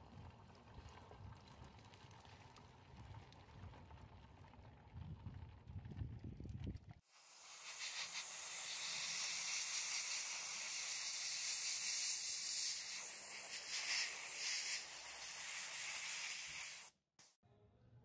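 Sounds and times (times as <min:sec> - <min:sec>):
sandblast gun hissing: 0:07.1 - 0:17.2.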